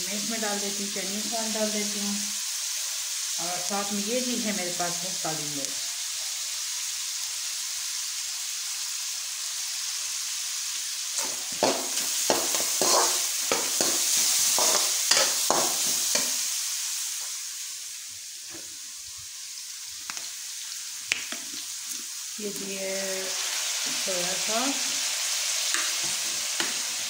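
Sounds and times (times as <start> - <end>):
food sizzling in a wok: 0.0 - 27.0
metal spatula scraping wok: 11.2 - 16.6.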